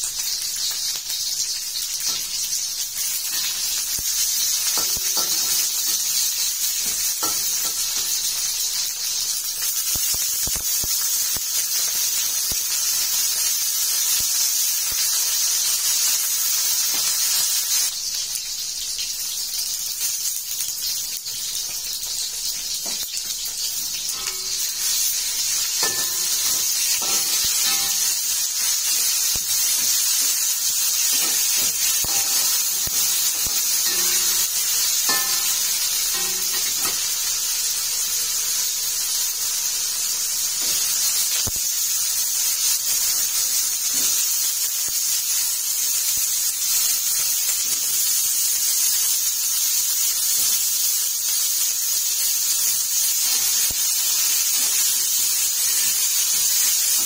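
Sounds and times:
food sizzling in hot oil: 0.0 - 57.0
metal spatula scraping wok: 23.9 - 30.0, 30.9 - 37.3.

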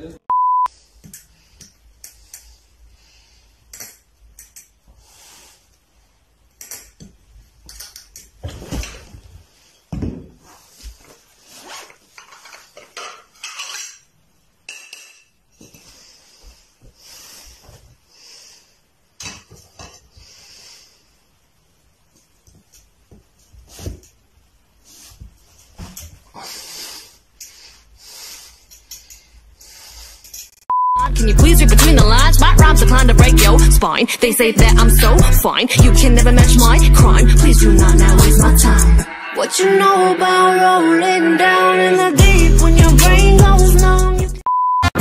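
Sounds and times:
test tone beep: 0.3 - 0.7
plates and bottle clinking: 12.3 - 14.1, 14.7 - 15.4.

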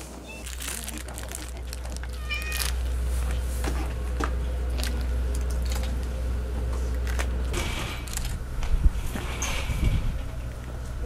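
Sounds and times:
steady low rumble: 0.5 - 11.0
cat meowing: 2.1 - 2.8.

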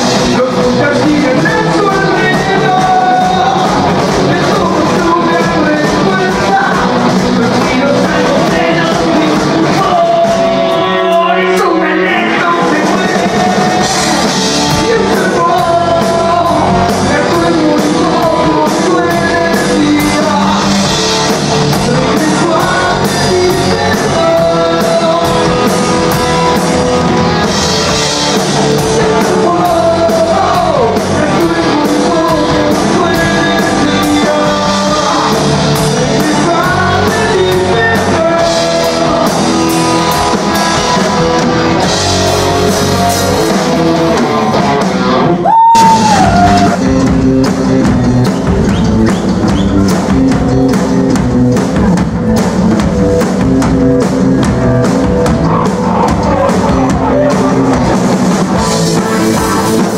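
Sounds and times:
man singing into a microphone: 0.0 - 21.0, 21.7 - 26.1, 28.8 - 41.4, 55.4 - 58.0
bass guitar: 0.0 - 59.9
drum kit with cymbal hits: 0.0 - 59.9
electric guitars: 0.0 - 59.9.

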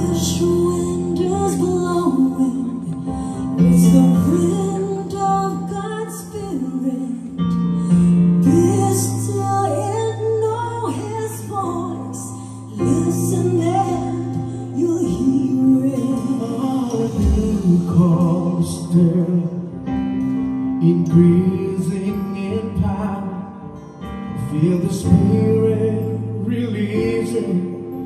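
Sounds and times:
woman singing worship song: 0.0 - 7.6, 8.4 - 19.4
instrumental backing with bass: 0.0 - 28.0.

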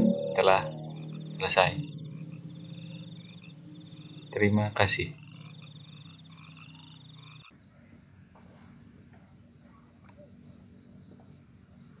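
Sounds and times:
steady hum: 0.0 - 7.5
faint outdoor ambience: 0.0 - 12.0.

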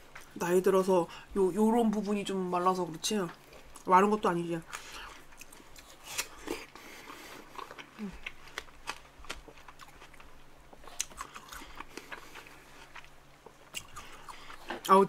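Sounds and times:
chewing watermelon: 4.7 - 15.0.

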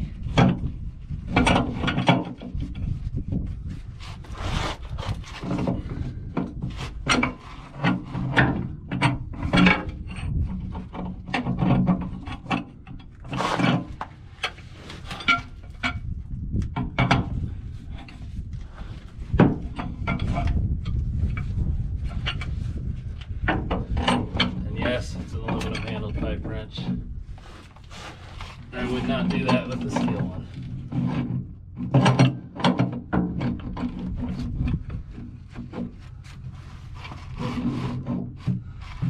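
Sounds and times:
steady low rumble: 0.0 - 32.0, 33.1 - 39.0
wrench scraping and clunking on metal: 0.1 - 39.0.

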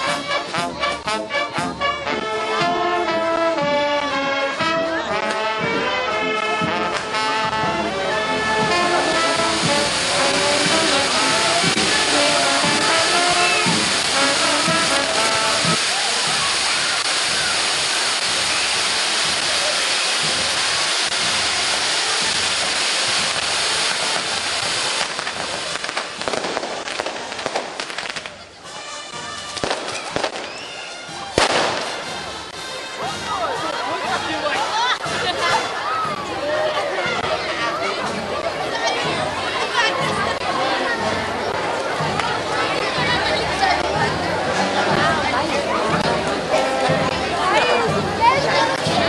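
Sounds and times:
brass band playing: 0.0 - 49.0
fireworks hissing: 6.9 - 33.3
sparks crackling: 8.7 - 28.4, 31.4 - 32.2.

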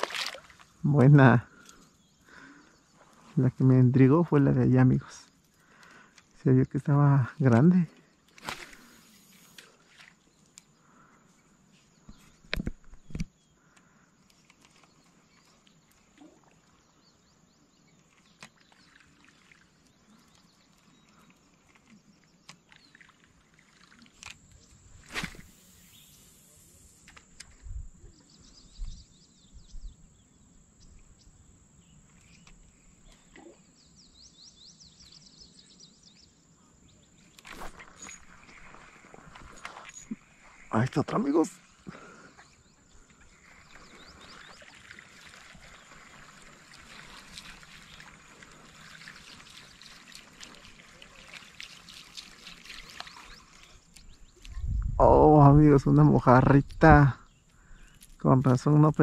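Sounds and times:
faint high bird chirps: 24.5 - 38.8.

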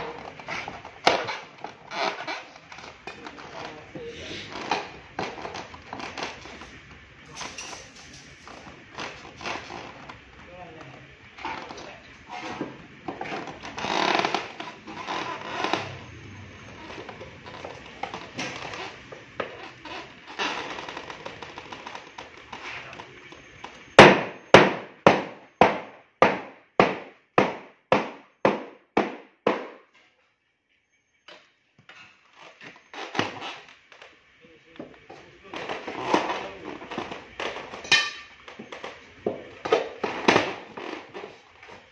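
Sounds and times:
metal bar scraping fiberglass: 11.4 - 23.1.

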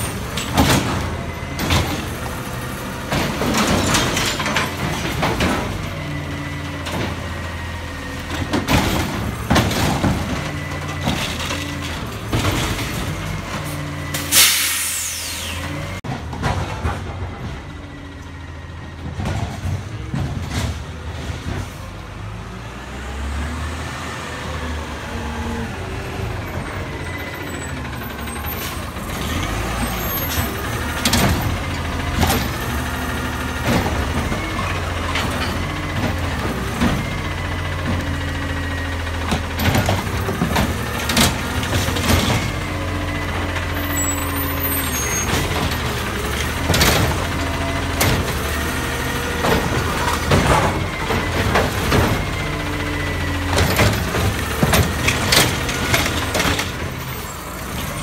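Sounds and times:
garbage truck engine running: 0.0 - 58.0
air brakes hissing: 14.2 - 15.9.

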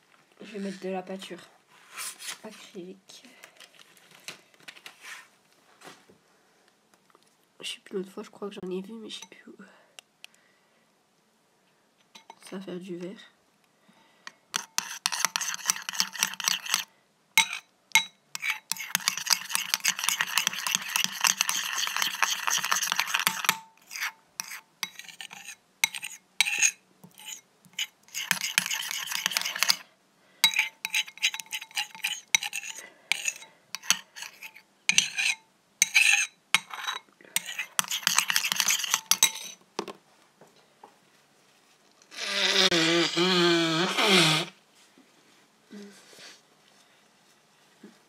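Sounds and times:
utensil scraping through glue: 14.6 - 16.9, 18.4 - 29.9, 30.5 - 39.6, 42.1 - 44.6.

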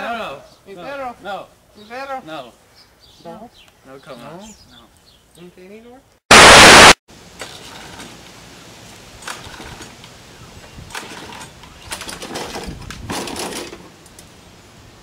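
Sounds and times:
lawn mower pull-start cord: 9.2 - 10.0, 10.9 - 13.9.

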